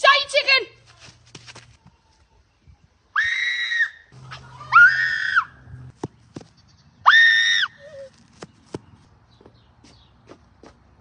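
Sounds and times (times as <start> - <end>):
person screaming shrilly: 4.6 - 5.6.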